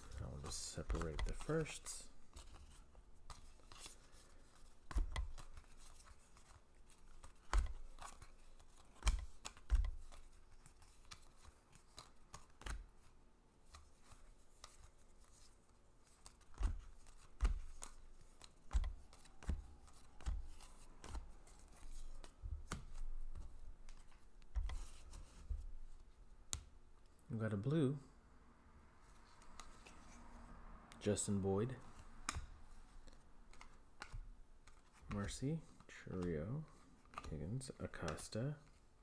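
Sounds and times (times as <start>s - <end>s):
cards clicking and tapping on table: 0.4s - 4.0s, 4.8s - 12.9s, 16.2s - 25.6s, 32.2s - 35.4s, 37.9s - 38.2s.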